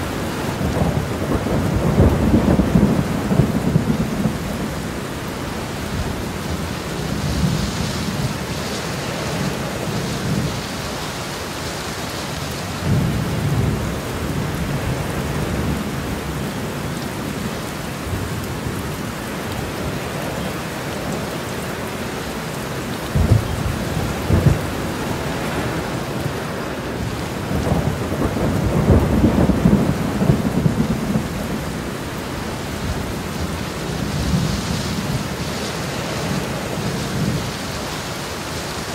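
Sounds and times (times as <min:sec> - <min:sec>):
thunder rumbling: 0:00.0 - 0:10.8, 0:23.0 - 0:37.7
heavy rain: 0:00.0 - 0:38.9.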